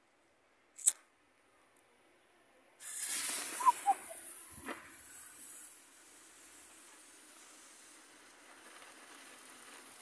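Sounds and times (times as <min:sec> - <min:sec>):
firework fuse hissing: 0:02.8 - 0:10.0.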